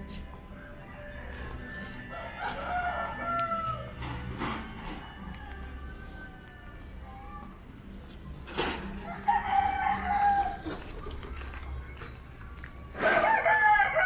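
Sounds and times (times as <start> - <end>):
low street hum: 0.0 - 14.0
rooster crowing: 2.1 - 4.0, 4.6 - 6.8, 9.0 - 10.7, 13.0 - 14.0.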